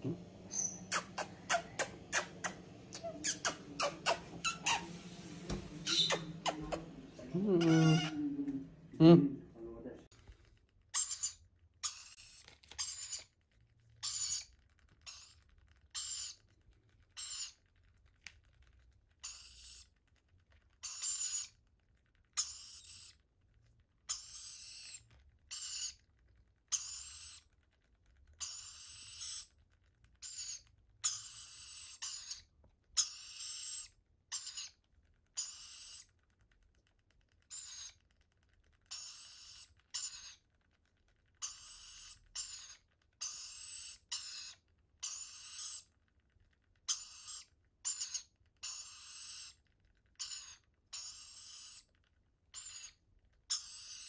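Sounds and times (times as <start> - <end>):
parrot chicks hissing begging calls: 0.3 - 8.2, 11.0 - 13.3, 14.0 - 16.4, 17.2 - 17.6, 19.2 - 19.8, 20.8 - 21.5, 22.4 - 23.1, 24.1 - 26.0, 26.7 - 27.4, 28.4 - 29.5, 30.2 - 34.8, 35.4 - 36.1, 37.5 - 38.0, 38.9 - 40.4, 41.4 - 45.9, 46.9 - 49.6, 50.2 - 51.9, 52.6 - 54.0.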